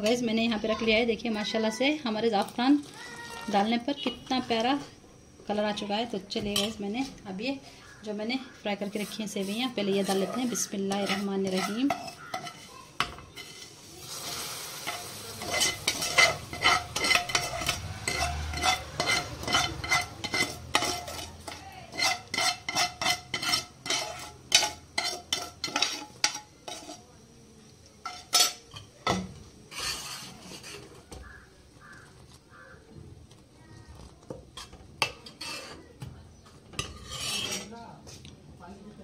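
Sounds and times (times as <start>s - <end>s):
metal spoon clinking against pot: 9.4s - 13.7s, 14.8s - 27.0s, 28.0s - 31.4s.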